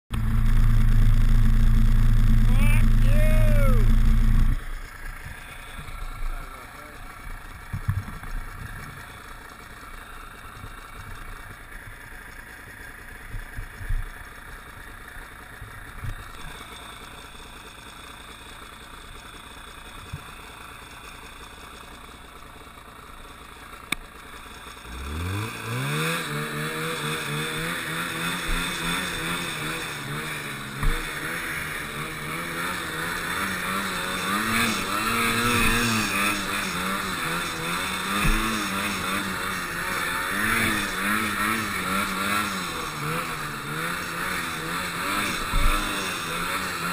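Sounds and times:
snowmobile engine revving: 0.1 - 11.0, 24.7 - 46.9.

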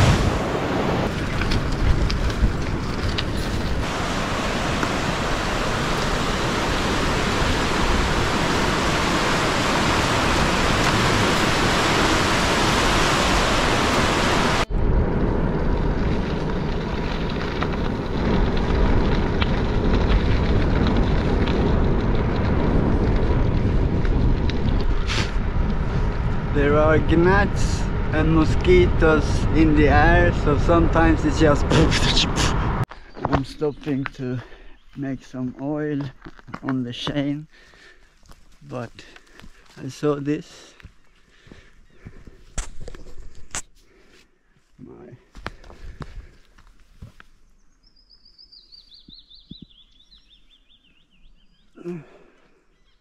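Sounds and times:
low rumble: 0.0 - 32.9
bicycle tyre noise: 0.0 - 33.5
wind noise on microphone: 0.0 - 33.5.

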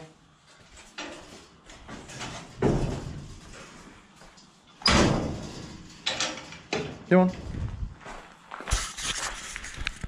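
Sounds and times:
metal gate clanking: 4.8 - 7.2
metal gate rattling: 4.8 - 7.2.

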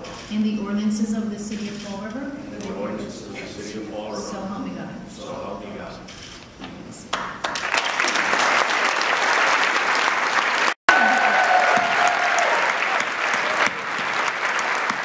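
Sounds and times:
audience applauding: 7.1 - 15.0.

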